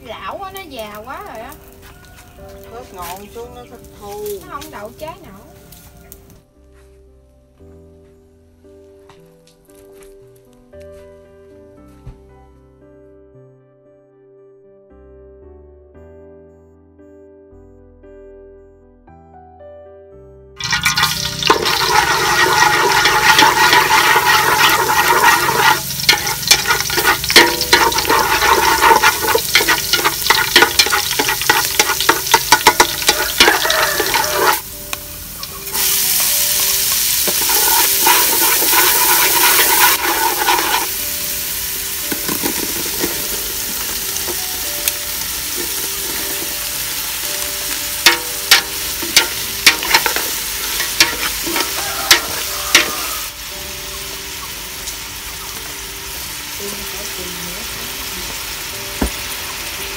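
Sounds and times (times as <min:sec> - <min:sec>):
hot oil sizzling in a pot: 0:00.0 - 0:06.4, 0:20.6 - 0:59.9.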